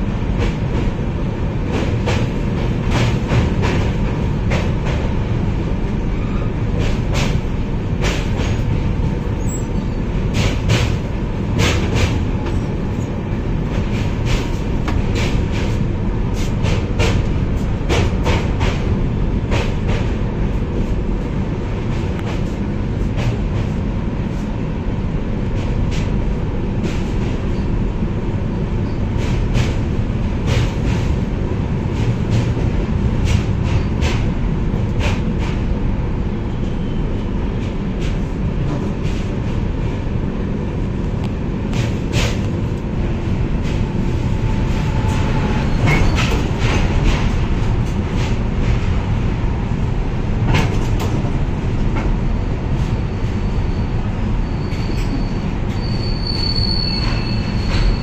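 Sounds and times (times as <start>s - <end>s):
train rumbling over bridge: 0.0s - 58.0s.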